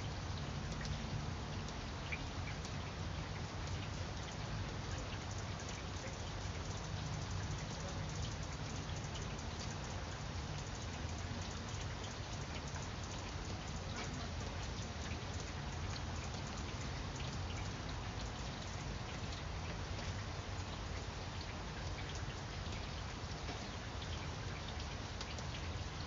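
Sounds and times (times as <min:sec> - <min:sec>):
rain on leaves: 0:00.0 - 0:26.0.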